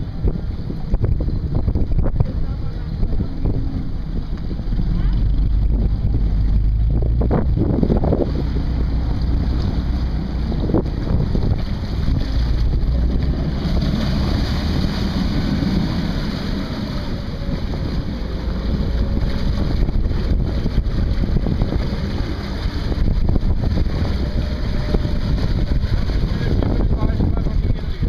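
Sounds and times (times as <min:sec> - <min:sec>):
boat engine running: 0:00.0 - 0:28.0
propeller churning water: 0:00.0 - 0:28.0
wind buffeting microphone: 0:00.0 - 0:28.0.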